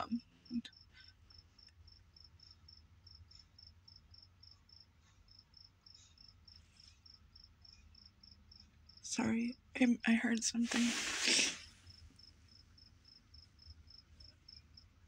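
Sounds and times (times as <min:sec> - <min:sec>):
cricket chirping: 0:00.5 - 0:09.0, 0:11.6 - 0:15.0.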